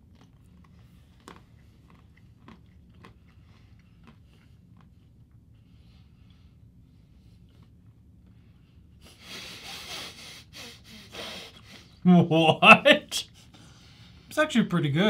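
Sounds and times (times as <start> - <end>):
people chewing: 0.0 - 6.4
low room hum: 0.0 - 15.0.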